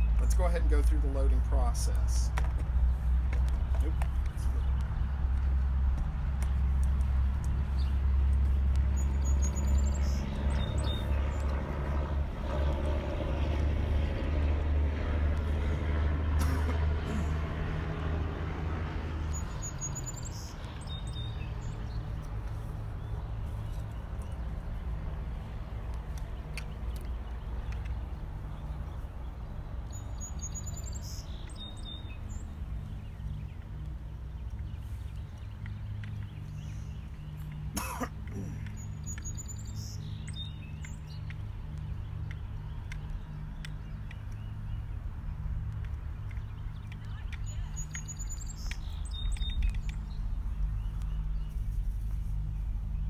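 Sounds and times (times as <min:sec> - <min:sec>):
vehicle engine hum: 0:00.0 - 0:53.0
person coughing: 0:16.4 - 0:17.4, 0:37.7 - 0:38.6
light clicks: 0:25.8 - 0:28.0, 0:33.6 - 0:44.5, 0:45.6 - 0:51.2.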